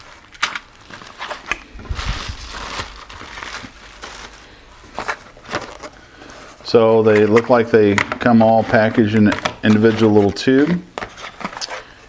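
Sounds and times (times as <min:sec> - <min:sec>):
cardboard rustling: 0:00.0 - 0:12.0
plastic tubes clicking and knocking: 0:07.1 - 0:11.8.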